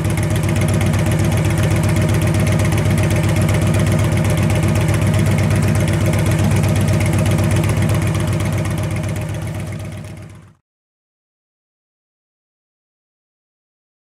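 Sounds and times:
motorcycle engine idling: 0.0 - 10.6.

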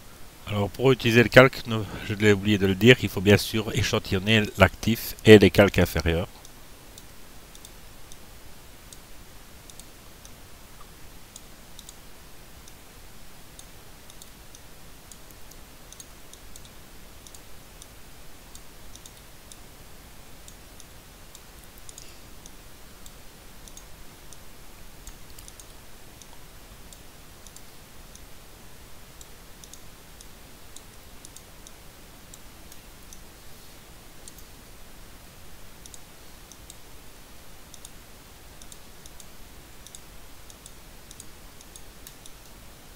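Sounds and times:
steady background hiss: 0.0 - 42.9
computer mouse clicks: 6.4 - 8.2, 9.7 - 10.4, 11.3 - 12.0, 13.6 - 17.9, 18.5 - 19.6, 20.4 - 24.4, 25.0 - 28.3, 29.2 - 33.2, 34.2 - 34.6, 35.8 - 36.8, 37.7 - 38.0, 38.6 - 42.6.

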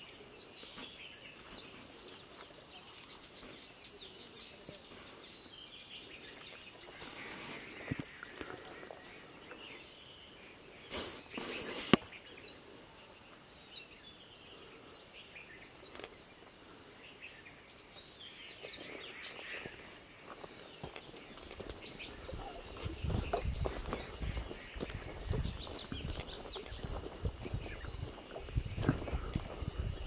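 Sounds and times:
rustle: 0.0 - 29.3
songbird chirping: 0.0 - 30.0
footsteps on dirt trail: 0.5 - 5.5, 18.7 - 30.0.

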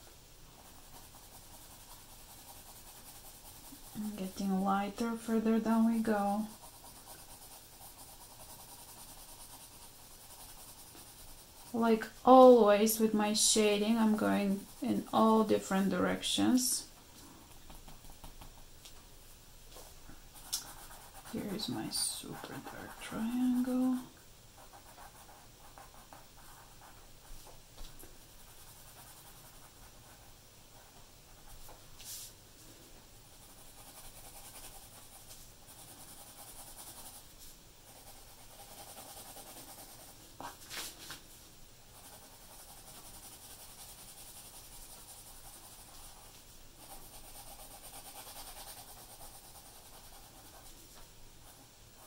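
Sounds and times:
pencil scratching on paper: 0.6 - 13.0, 13.6 - 15.6, 20.4 - 27.0, 28.4 - 30.9, 33.3 - 37.2, 37.9 - 40.8, 41.9 - 50.8.

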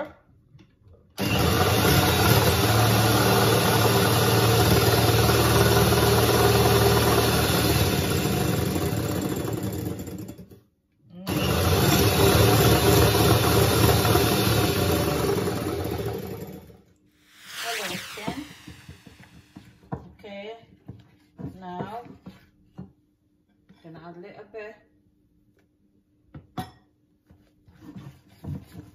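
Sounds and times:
electric hand mixer whipping: 1.2 - 9.5, 11.3 - 16.6, 17.2 - 20.0.

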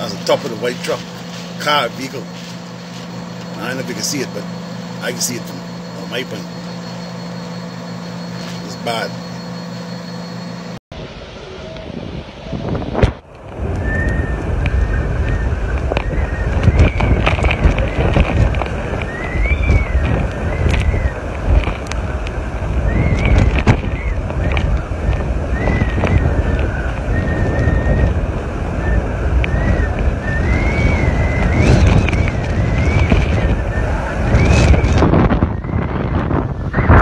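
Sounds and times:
high thin wavering whistle: 0.0 - 10.8, 25.5 - 37.0
strong wind buffeting microphone: 10.9 - 37.0.

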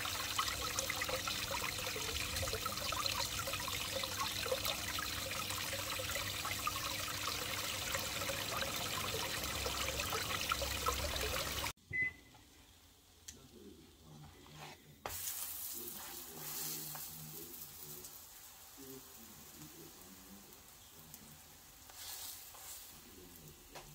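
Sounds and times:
trickling pond water: 0.0 - 11.8
flatbread sizzling in a pan: 14.3 - 23.9.

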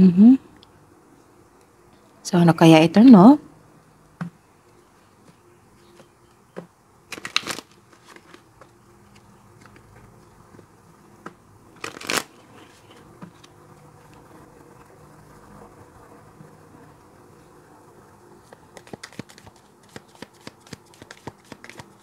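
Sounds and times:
cards riffling: 7.1 - 8.5, 11.8 - 12.4, 18.5 - 22.0.

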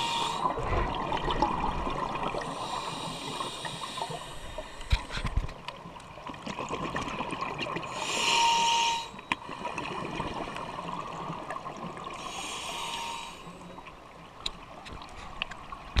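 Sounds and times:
steady water hiss: 0.0 - 1.1, 1.9 - 5.5, 7.8 - 13.9.

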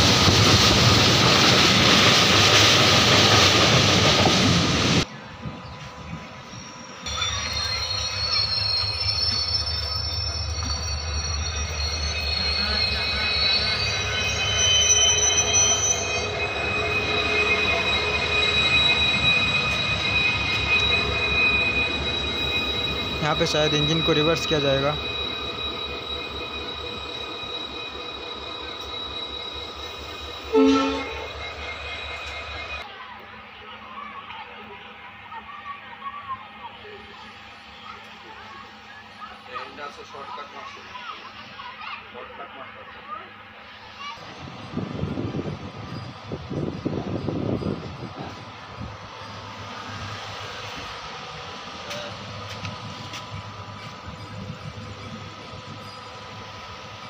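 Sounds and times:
low train rumble: 0.0 - 57.0
faint high whine: 5.1 - 32.8
train wheels squealing: 5.3 - 32.9, 34.0 - 57.0
train horn blast: 30.5 - 31.3.

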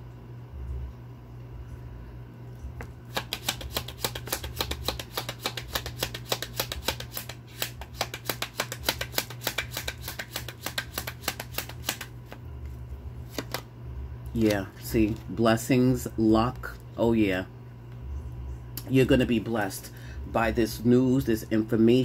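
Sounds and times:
cards being shuffled: 3.1 - 13.7, 14.4 - 15.4.

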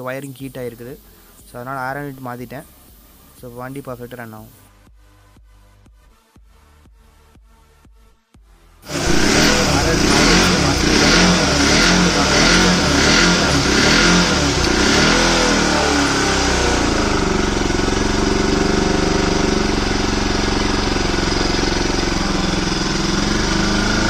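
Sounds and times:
motorcycle engine revving and idling: 8.8 - 24.0.

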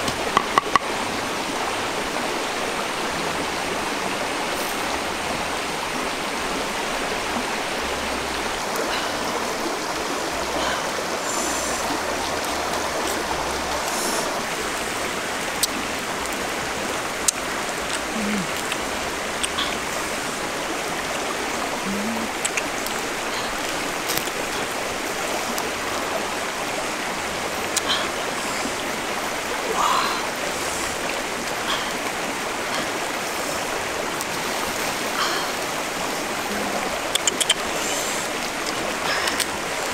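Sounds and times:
rocky river rushing: 0.0 - 39.9
sharp clicks: 37.1 - 37.6.

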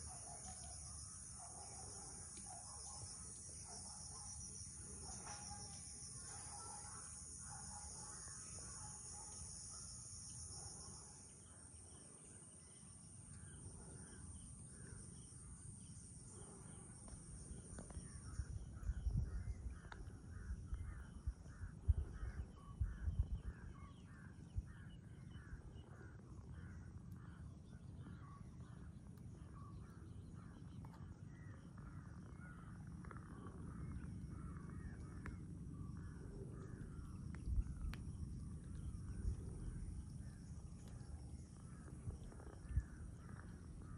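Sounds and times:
high insect drone: 0.0 - 22.3, 31.3 - 43.9.

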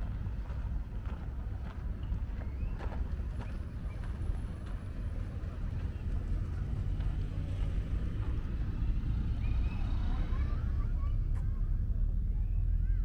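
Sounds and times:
distant city traffic hum: 0.0 - 13.0.

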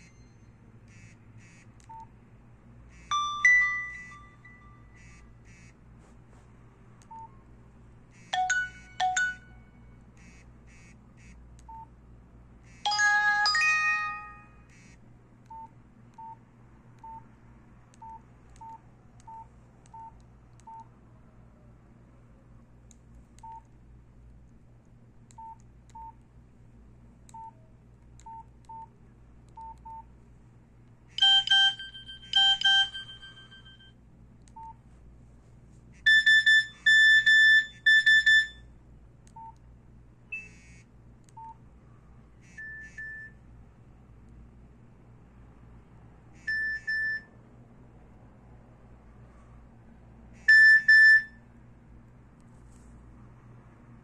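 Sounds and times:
ringing chimes: 3.1 - 4.9, 12.9 - 14.5, 31.2 - 33.9
phone message-alert tones: 3.1 - 5.2, 8.4 - 9.6, 12.9 - 14.6, 31.2 - 33.9, 36.1 - 38.6
phone key-press beeps: 25.4 - 26.1, 31.2 - 33.8, 36.1 - 38.6, 46.5 - 47.3, 50.5 - 51.3.

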